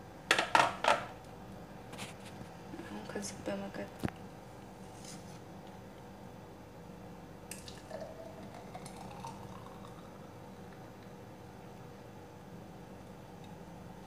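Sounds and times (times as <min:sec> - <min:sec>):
thick juice pouring into glass: 0:07.5 - 0:10.4.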